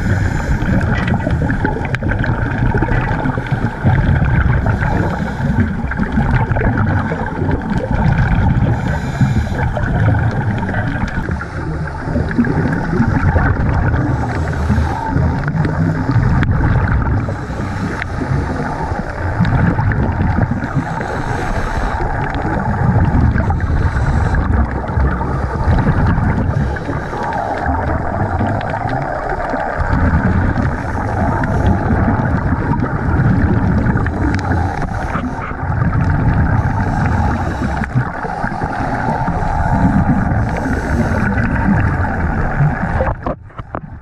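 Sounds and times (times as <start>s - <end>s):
muffled underwater rumble: 0.0s - 44.0s
scuba exhaust bubbles gushing: 0.0s - 44.0s.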